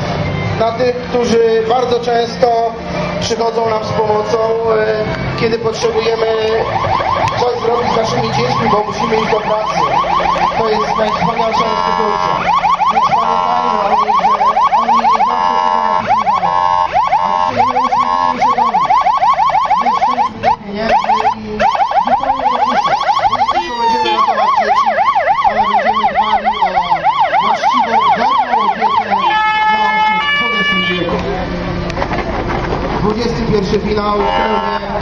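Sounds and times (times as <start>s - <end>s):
electronic siren yelping and wailing: 5.6s - 31.2s, 34.2s - 35.0s.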